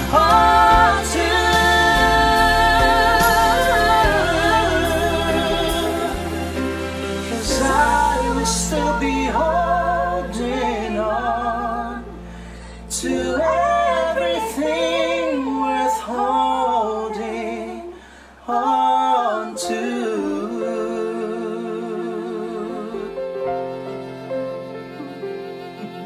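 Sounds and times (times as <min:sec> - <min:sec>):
woman and man singing duet: 0:00.0 - 0:23.2
singer breaths: 0:12.1 - 0:12.9, 0:17.9 - 0:18.4.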